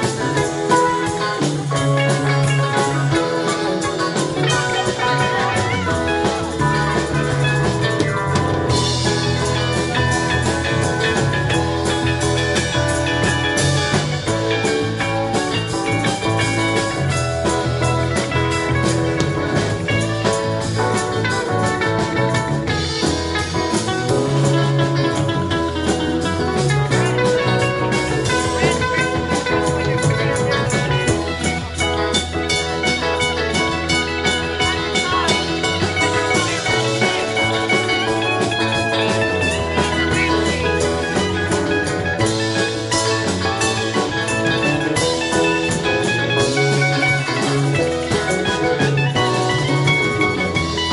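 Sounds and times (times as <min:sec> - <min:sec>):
bass guitar: 0:00.0 - 0:50.9
drum kit beat: 0:00.0 - 0:50.9
electric guitars: 0:00.0 - 0:50.9.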